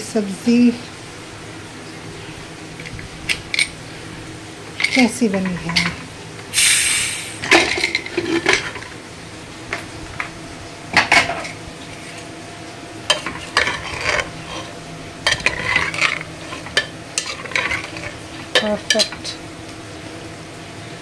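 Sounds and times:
metal ladle scraping a pot: 4.8s - 6.1s, 7.4s - 9.0s, 13.1s - 19.4s.

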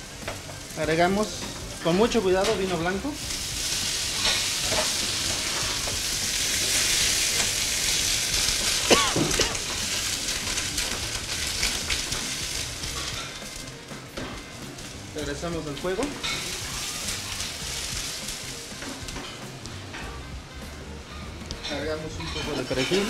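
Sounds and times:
wine sizzling in hot skillet: 0.0s - 23.0s.

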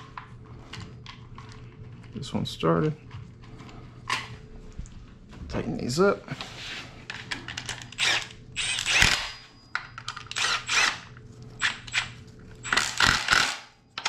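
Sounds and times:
electric ratchet running: 7.9s - 9.4s, 10.3s - 13.7s.

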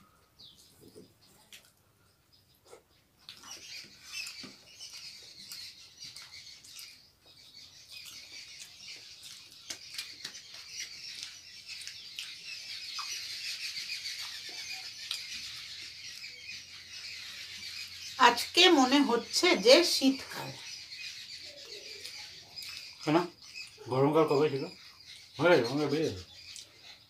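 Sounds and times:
wet chewing and lip-smacking: 2.6s - 13.2s, 13.8s - 16.4s, 22.0s - 23.0s.

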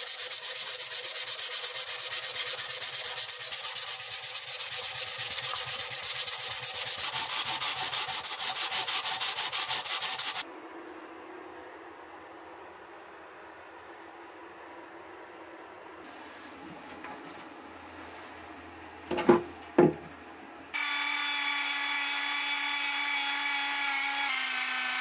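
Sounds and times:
sanding cloth rasping on steel: 0.0s - 10.4s.

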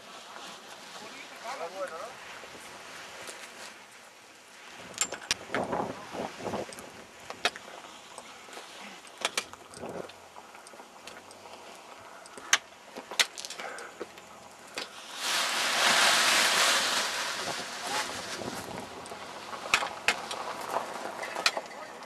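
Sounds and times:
clothing rustling on microphone: 14.9s - 21.4s.

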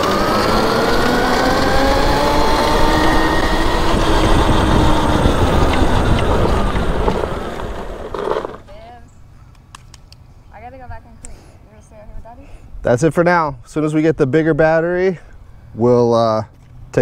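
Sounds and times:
electric motor whining: 0.0s - 8.7s
low rumble: 1.0s - 8.7s.

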